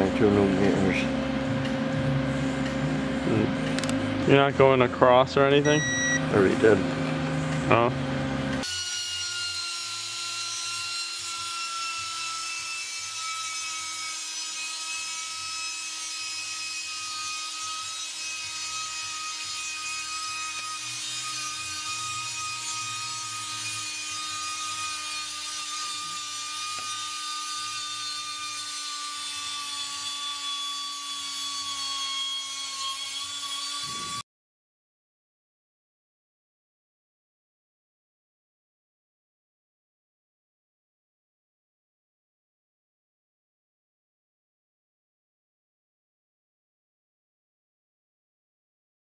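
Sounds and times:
mechanical whine: 0:00.0 - 0:08.6.

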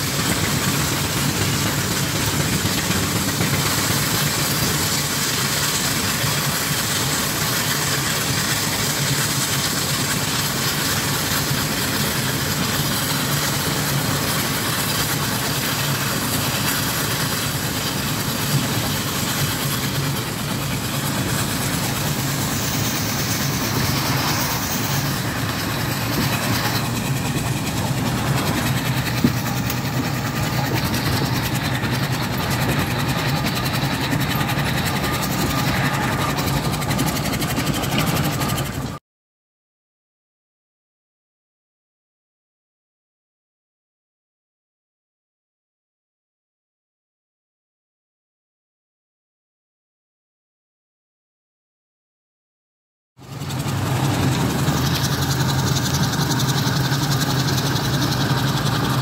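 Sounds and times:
steam traction engine running: 0:00.0 - 0:39.0, 0:53.2 - 0:59.0.

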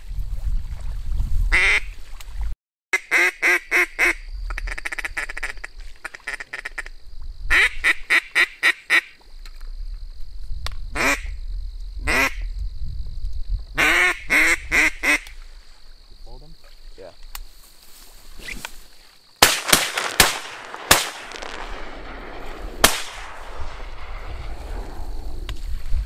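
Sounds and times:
wind rumble on microphone: 0:00.0 - 0:02.5, 0:09.4 - 0:16.2, 0:21.7 - 0:26.0.

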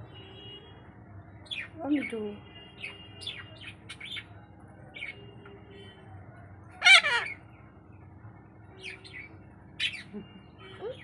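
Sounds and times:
parakeet squawk: 0:06.7 - 0:07.4.

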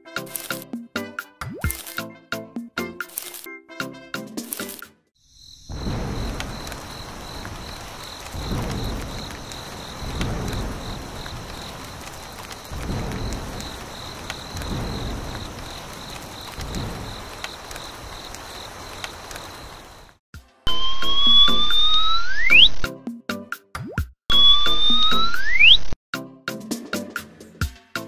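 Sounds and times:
pulsing insect chirp: 0:05.2 - 0:22.8, 0:24.3 - 0:25.9
steady rain: 0:05.5 - 0:20.8
low rolls of thunder: 0:05.6 - 0:20.2.

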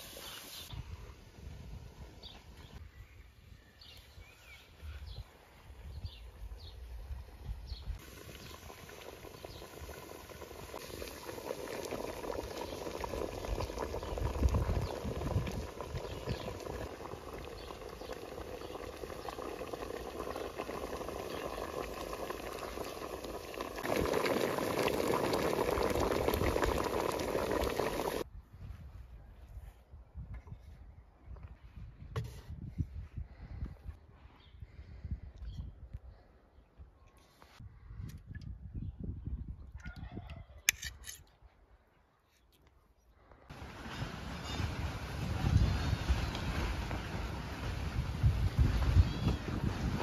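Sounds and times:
water boiling in a pot: 0:07.9 - 0:28.3, 0:44.4 - 0:50.0.

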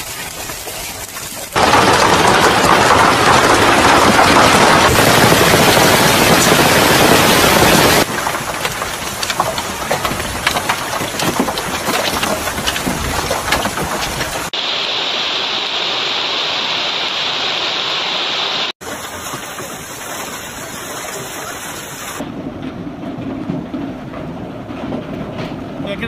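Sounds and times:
hail pelting the ground: 0:00.0 - 0:14.6
heavy rain: 0:00.0 - 0:22.6.

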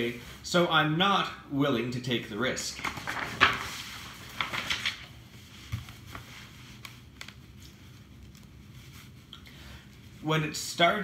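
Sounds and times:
book page turning: 0:02.7 - 0:09.3
faint paper clicks: 0:05.8 - 0:08.6.

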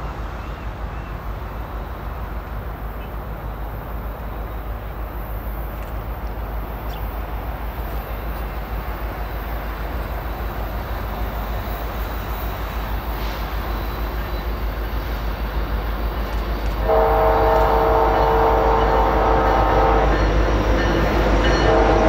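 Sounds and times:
diesel locomotive rumble: 0:00.0 - 0:22.0
locomotive air horn chord: 0:16.8 - 0:20.4, 0:21.6 - 0:22.0.

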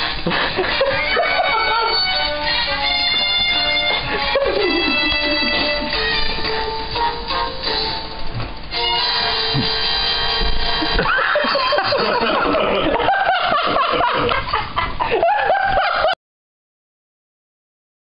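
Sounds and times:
music: 0:00.0 - 0:12.5
laughter: 0:00.2 - 0:02.2, 0:04.1 - 0:06.0, 0:10.9 - 0:16.2.

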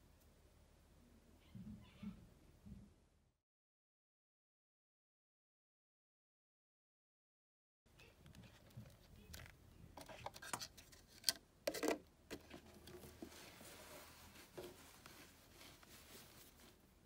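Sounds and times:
faint low hum: 0:00.0 - 0:03.4
rustling: 0:08.0 - 0:17.0.

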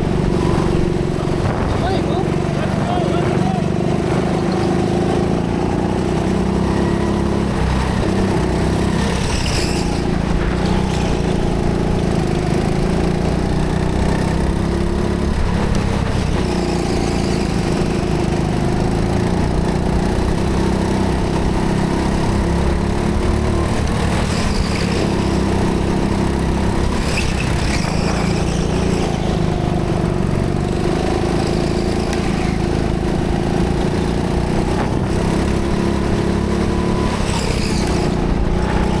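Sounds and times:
go-kart engine running: 0:00.0 - 0:39.0.

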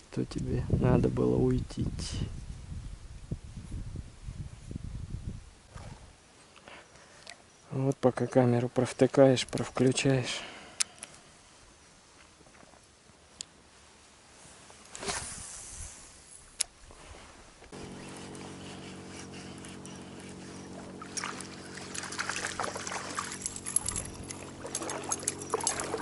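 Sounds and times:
motorboat engine drone: 0:17.7 - 0:26.0.

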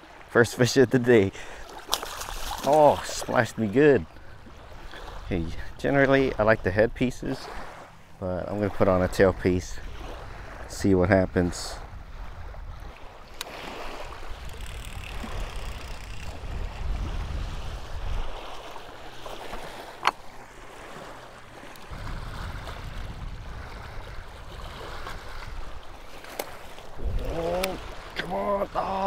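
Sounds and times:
small waves lapping on rocks: 0:00.0 - 0:29.0
wind rumbling on microphone: 0:08.5 - 0:19.8, 0:20.6 - 0:29.0.

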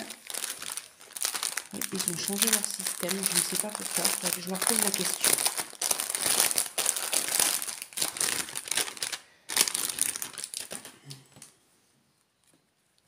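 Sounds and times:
plastic packaging crinkling: 0:00.0 - 0:11.5.

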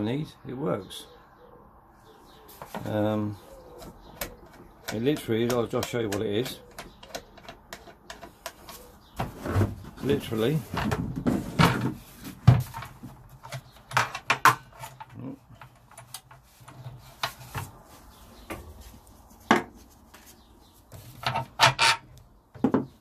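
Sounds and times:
plastic lid knocking and scraping: 0:09.2 - 0:15.8, 0:22.6 - 0:23.0.

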